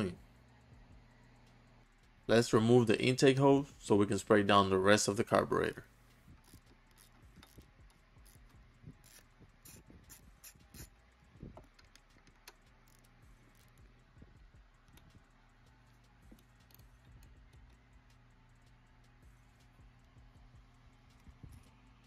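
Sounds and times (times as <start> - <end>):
faint clicks and rubbing: 6.3 - 13.9.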